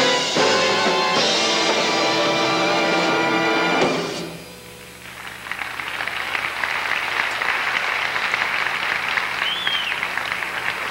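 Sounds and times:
band's final chord: 0.0s - 4.8s
audience applause: 5.0s - 10.9s
rising-and-falling whistle: 9.4s - 10.0s.

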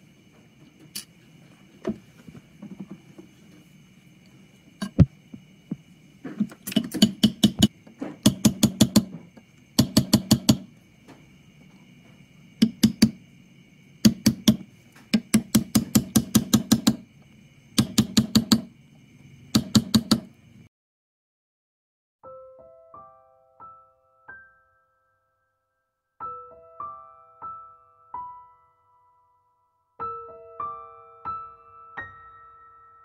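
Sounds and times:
hammer tapping metal punch: 6.7s - 9.2s, 9.8s - 10.7s, 12.6s - 13.2s, 14.0s - 17.0s, 17.8s - 18.7s, 19.6s - 20.3s.

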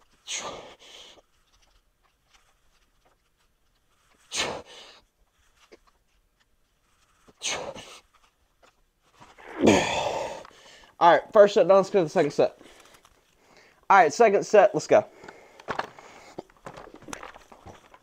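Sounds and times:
man breathing out forcefully: 9.4s - 10.9s.

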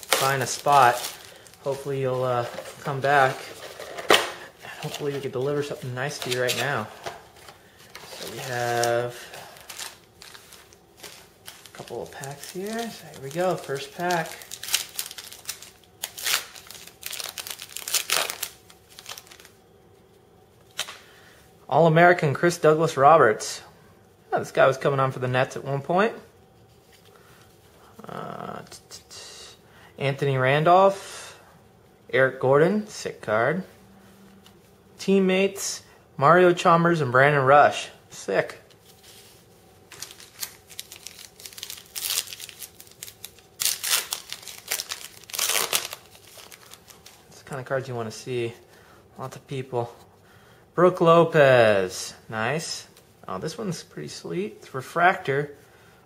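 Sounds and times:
foil wrapper crackling: 0.0s - 3.8s, 4.8s - 19.6s, 39.0s - 47.8s
trading cards clicking and rustling: 0.0s - 19.5s.

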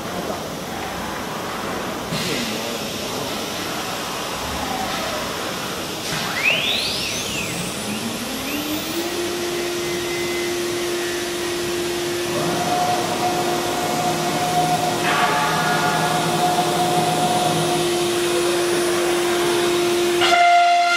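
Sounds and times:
router spindle whine: 4.2s - 20.9s
higher steady tone: 6.6s - 20.9s.

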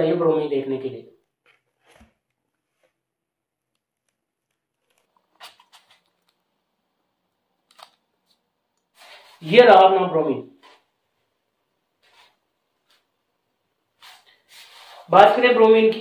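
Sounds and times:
faint scrapes and clicks: 1.2s - 3.0s, 3.7s - 6.4s.

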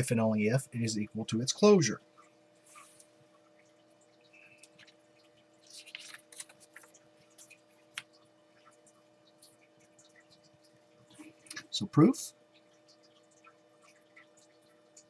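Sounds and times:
faint electrical hum: 0.0s - 15.0s
paper page turning: 5.6s - 8.1s.

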